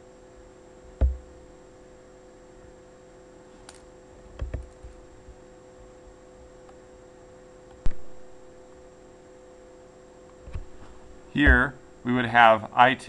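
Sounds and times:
steady electrical hum: 0.0 - 13.0
thump: 1.0 - 1.2, 11.4 - 11.7
desk handling knocks and clicks: 1.0 - 1.3, 4.4 - 4.8, 11.4 - 11.8.

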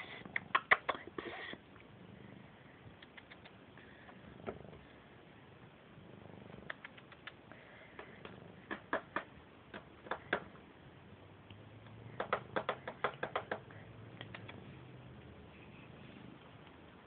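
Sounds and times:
cat purring: 0.0 - 17.0
sharp clicks and taps: 3.0 - 3.6, 6.7 - 7.4, 8.0 - 10.6, 12.2 - 14.6.

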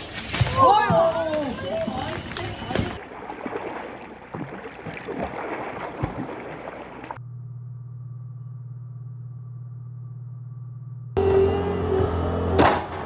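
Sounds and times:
sea water splashing: 1.4 - 7.2
steady low hum: 7.1 - 12.0.

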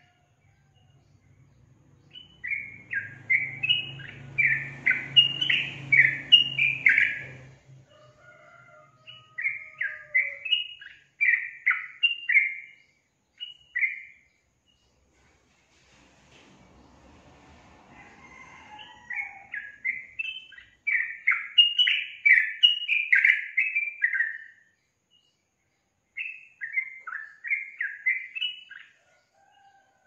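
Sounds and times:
bird chattering song: 2.0 - 7.5, 9.1 - 15.0, 19.1 - 25.4, 26.2 - 29.0.

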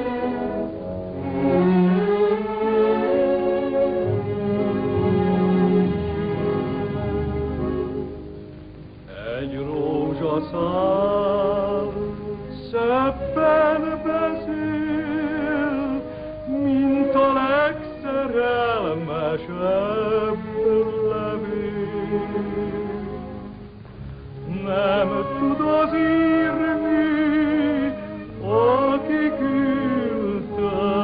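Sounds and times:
instrumental accompaniment: 0.0 - 31.0
man singing with vibrato: 9.1 - 23.4, 24.4 - 31.0.

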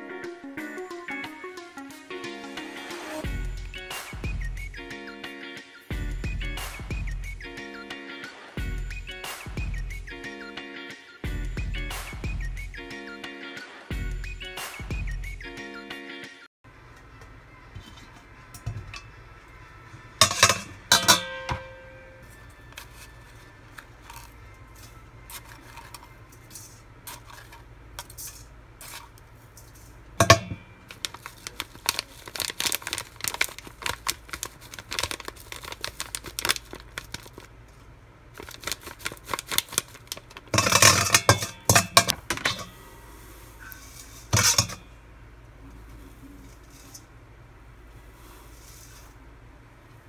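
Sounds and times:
metal spoon scraping steel bowl: 20.2 - 21.3, 24.0 - 30.6, 40.6 - 42.7, 43.6 - 44.9
paper packet rustling: 22.2 - 30.0, 30.7 - 42.7.

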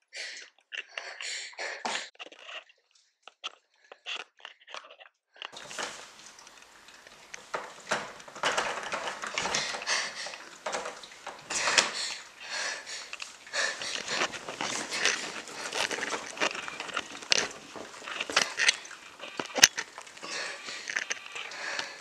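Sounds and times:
girl breathing raggedly and sniffling: 0.0 - 2.2, 11.5 - 15.8
rustling: 2.2 - 22.0
clicks: 5.6 - 22.0
steady hiss: 5.6 - 22.0.

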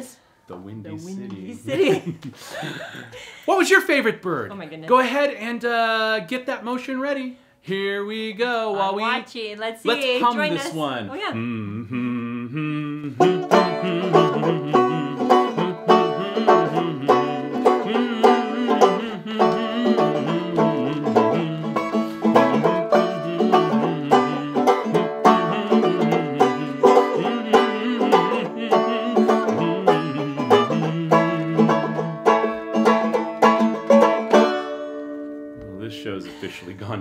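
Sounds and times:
banjo playing plucked notes: 13.0 - 36.1.

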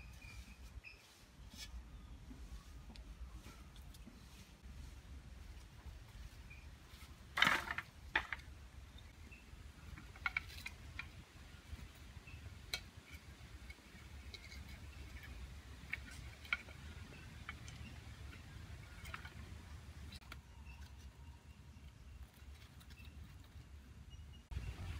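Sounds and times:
firewood sticks clattering: 6.5 - 9.2, 9.8 - 20.4.

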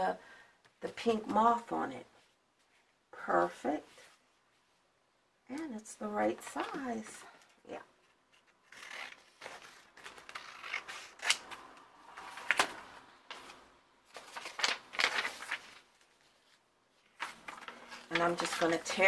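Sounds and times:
paper rustling and crackling: 8.0 - 19.0.

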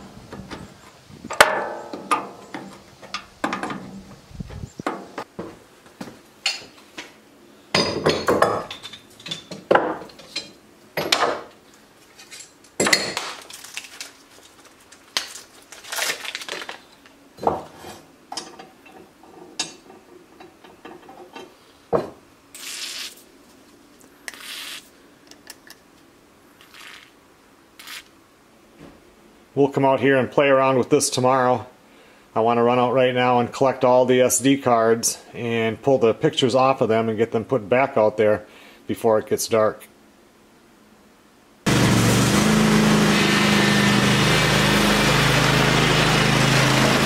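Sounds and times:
metal parts clanking on workbench: 7.8 - 11.4
aerosol spray can hisses: 22.6 - 23.2, 24.3 - 24.9.

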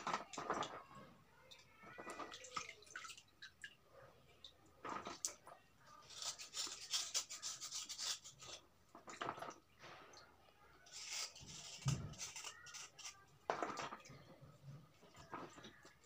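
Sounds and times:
knife blade scraping stone: 10.9 - 13.1.

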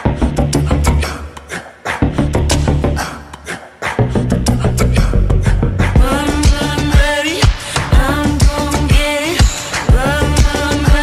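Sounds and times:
background music with kick drum: 5.0 - 11.0.

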